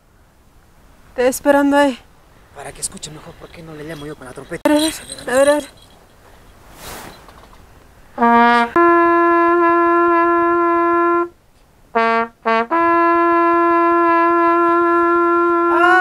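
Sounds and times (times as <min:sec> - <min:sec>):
trumpet call: 0:08.2 - 0:11.4, 0:12.0 - 0:16.0.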